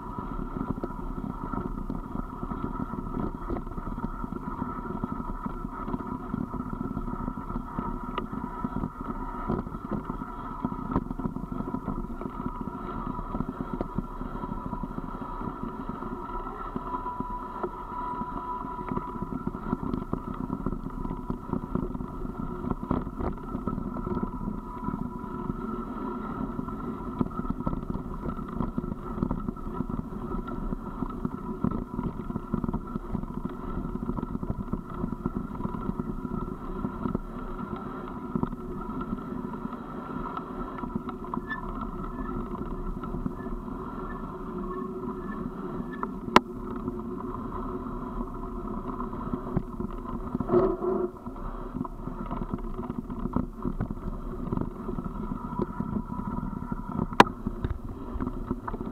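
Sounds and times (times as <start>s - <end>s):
vehicle driving on gravel: 0.0s - 58.9s.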